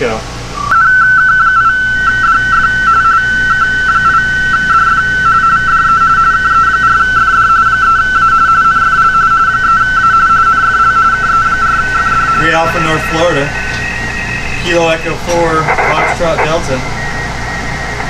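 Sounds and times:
two-tone radio data warble: 0:09.5 - 0:18.0.

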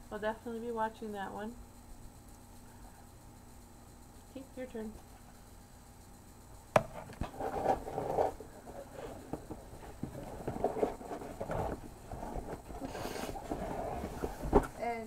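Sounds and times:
cardboard box rustling and scraping: 0:06.9 - 0:14.7.

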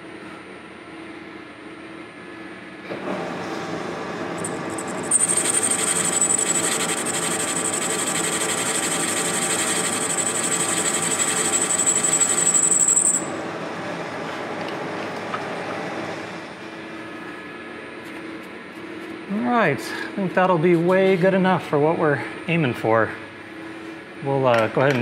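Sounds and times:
metal lathe humming: 0:04.2 - 0:16.6
high whine of tool cutting: 0:04.3 - 0:14.0.

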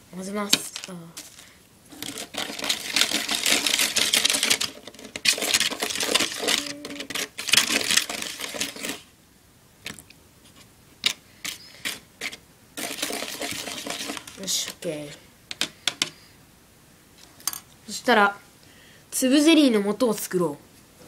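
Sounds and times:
plastic spoon scraping tray: 0:00.5 - 0:09.1, 0:09.9 - 0:16.2.

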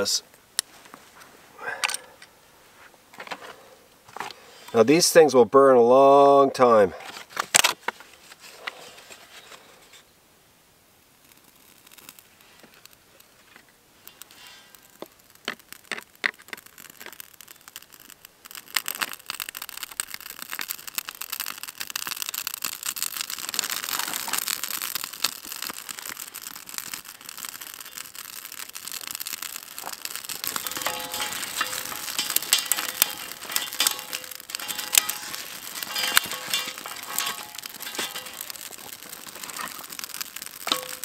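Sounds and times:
fire crackling and popping: 0:00.0 - 0:05.3, 0:06.0 - 0:10.1, 0:10.8 - 0:41.0
twigs rustling and snapping: 0:11.3 - 0:41.0.

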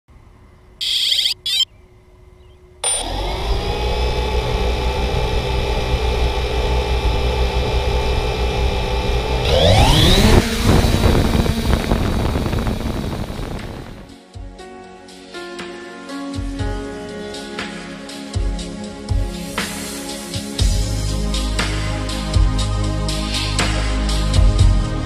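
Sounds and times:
drone motors whining: 0:00.8 - 0:01.6, 0:02.8 - 0:14.1
short electronic beeps: 0:00.8 - 0:01.7.

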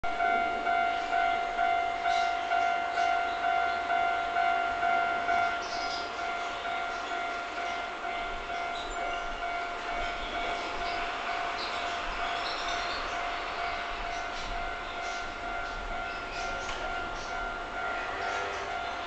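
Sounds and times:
electric train approaching: 0:00.0 - 0:19.0.

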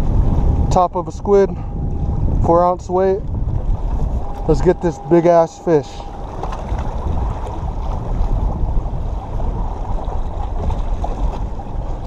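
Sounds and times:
wind rumble on microphone: 0:00.0 - 0:12.0
waves washing against rocks: 0:03.7 - 0:12.0.

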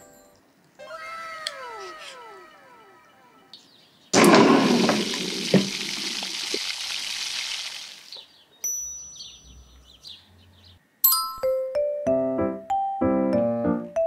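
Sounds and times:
twinkling chime sound effect: 0:08.6 - 0:09.8.

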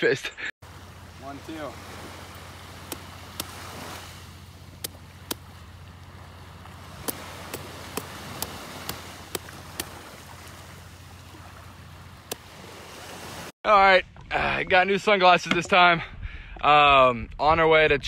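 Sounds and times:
surf hissing: 0:00.6 - 0:13.5
machete chopping coconut: 0:02.8 - 0:03.6, 0:07.0 - 0:10.0.

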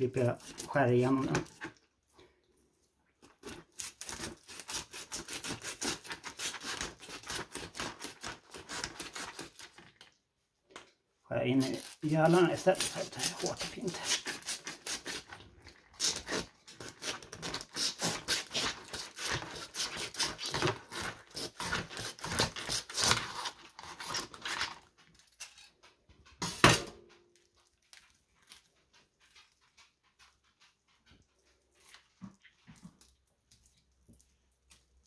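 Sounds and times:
knife crunching through fish: 0:00.2 - 0:01.8, 0:03.2 - 0:10.0, 0:11.6 - 0:25.7
faint handling noises: 0:23.6 - 0:35.0.

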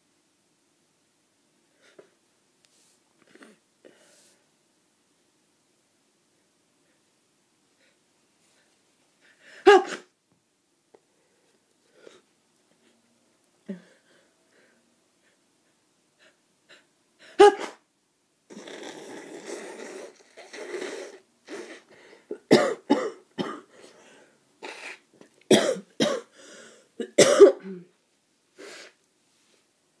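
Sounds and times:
person coughing: 0:09.6 - 0:10.1, 0:17.4 - 0:17.8, 0:22.3 - 0:23.7, 0:24.6 - 0:26.4, 0:27.0 - 0:28.0.

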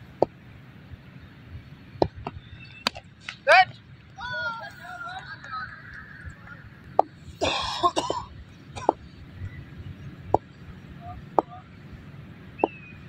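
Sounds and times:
person coughing: 0:07.4 - 0:09.0.

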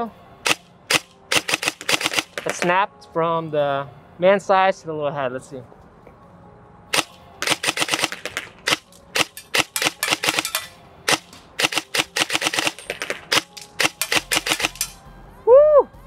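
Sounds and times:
airsoft rifle shots: 0:00.4 - 0:02.8, 0:06.9 - 0:15.0.

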